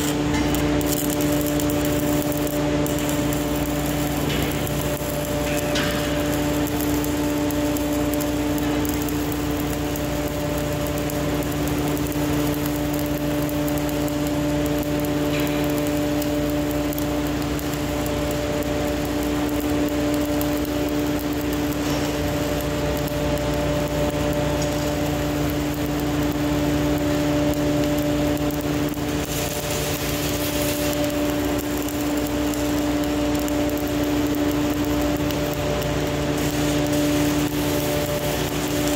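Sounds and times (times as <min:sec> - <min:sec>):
welding arc crackling and hissing: 0:00.0 - 0:38.9
welding machine hum: 0:00.0 - 0:38.9.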